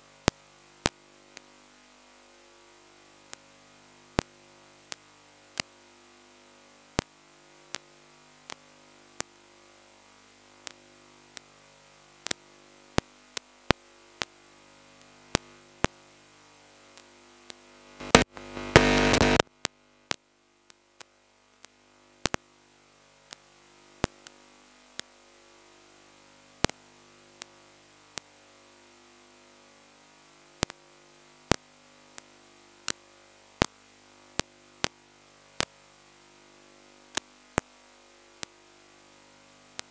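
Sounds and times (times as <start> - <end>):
electronic static drone: 0.0 - 39.9
sharp static clicks: 0.0 - 39.9
loud burst of static: 17.7 - 19.5.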